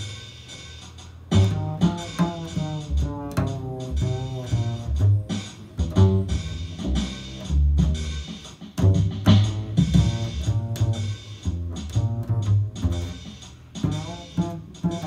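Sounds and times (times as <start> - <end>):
double bass plucked: 1.1 - 15.0.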